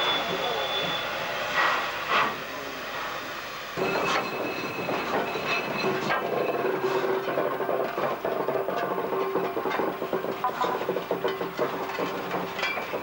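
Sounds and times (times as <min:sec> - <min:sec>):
faint high whine: 0:00.0 - 0:01.3
steam locomotive bursts: 0:00.0 - 0:13.0
metallic wheel running sound: 0:03.8 - 0:13.0.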